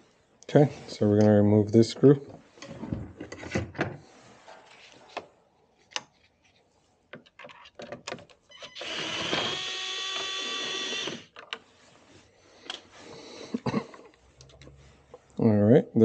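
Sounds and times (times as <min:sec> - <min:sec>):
screwdriver whirring whine: 0:08.6 - 0:11.4.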